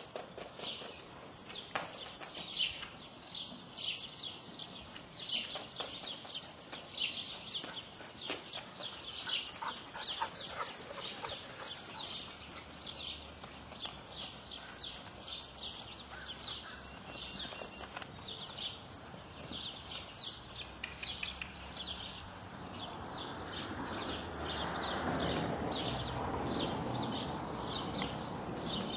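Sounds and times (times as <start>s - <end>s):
small birds chirping: 0.0s - 28.9s.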